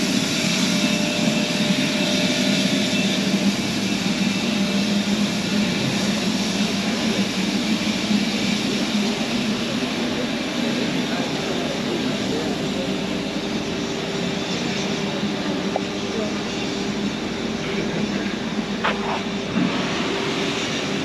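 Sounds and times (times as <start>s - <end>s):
steam hissing from locomotive: 0.0s - 21.0s.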